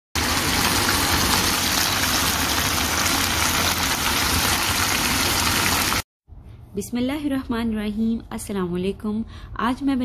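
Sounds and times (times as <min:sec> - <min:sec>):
meat sizzling in oil: 0:00.2 - 0:06.0.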